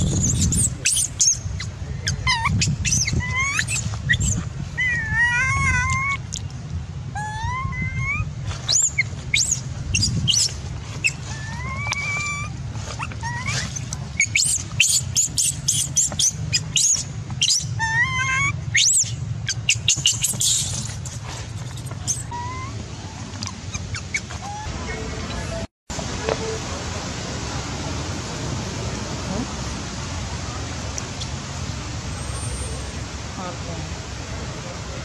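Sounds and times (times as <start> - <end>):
baby monkey whimpering coo calls: 0.0 - 6.3, 7.2 - 22.8, 23.4 - 25.7
high squeaks: 7.2 - 22.8.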